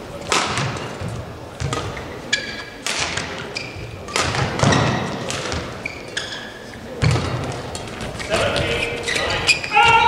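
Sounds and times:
shoes squeaking on court: 1.0 - 10.0.

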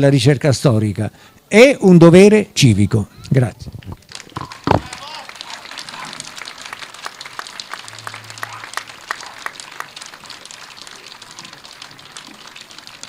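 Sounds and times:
audience applauding: 4.0 - 13.0.

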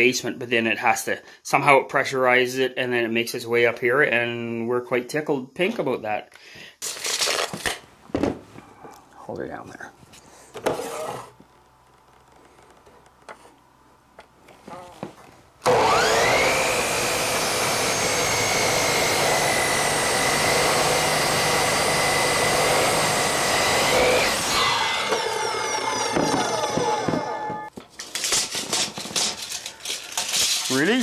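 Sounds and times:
miter saw cutting wood: 15.6 - 27.7
handling lumber: 22.0 - 31.0.

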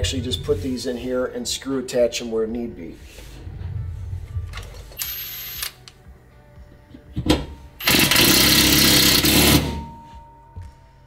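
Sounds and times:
impact driver driving a screw: 7.8 - 9.8.

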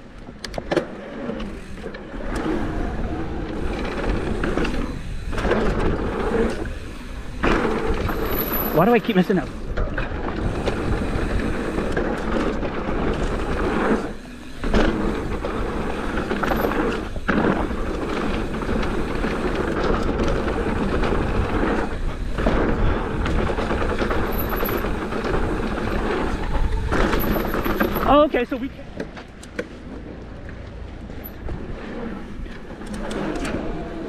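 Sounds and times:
tyres rolling on dirt: 0.0 - 34.0
bike rattling and knocking: 0.2 - 34.0
wind buffeting microphone: 2.5 - 8.3, 9.5 - 16.4, 17.0 - 29.0.

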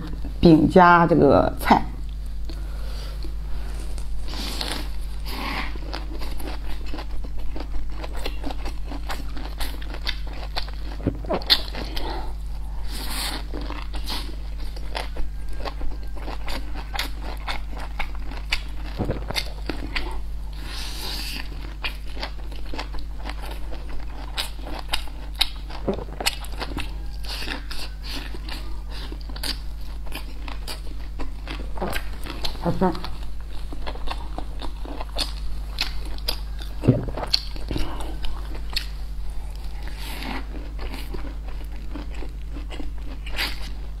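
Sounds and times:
low electrical hum: 0.0 - 44.0
wet chewing with crunches: 2.0 - 44.0.

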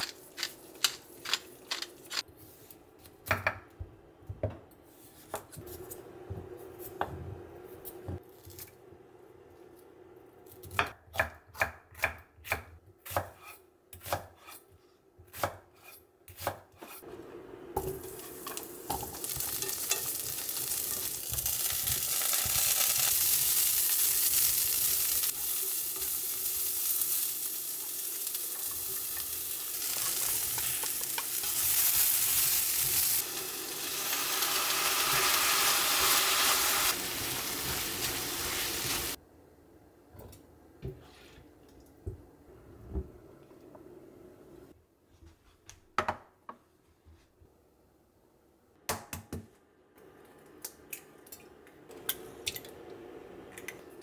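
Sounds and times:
vegetables sizzling in skillet: 17.8 - 39.2
chopsticks stirring in skillet: 18.0 - 23.7.

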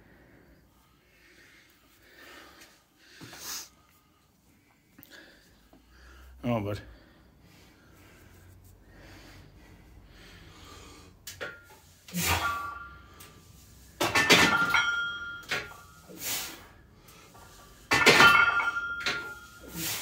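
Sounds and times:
barbell plates clanking: 14.0 - 15.8.

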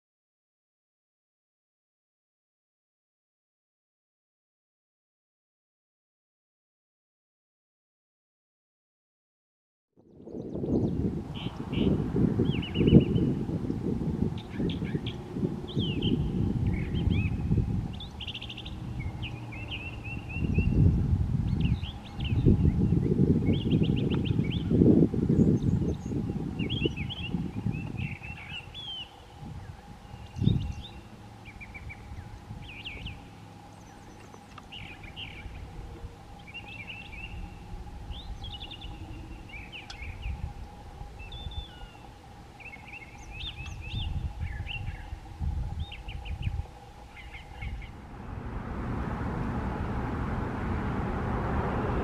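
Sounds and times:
bird singing varied phrases: 10.0 - 13.8, 14.4 - 20.9, 25.3 - 45.2, 45.8 - 48.1
steady rushing noise: 29.2 - 52.0.

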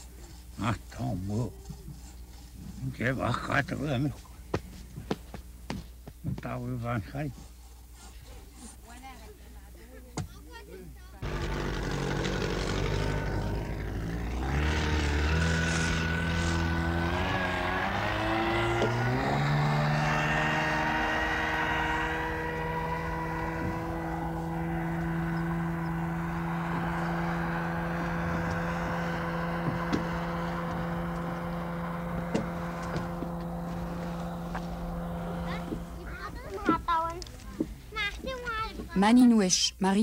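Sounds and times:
propeller engine drone: 11.2 - 37.4.

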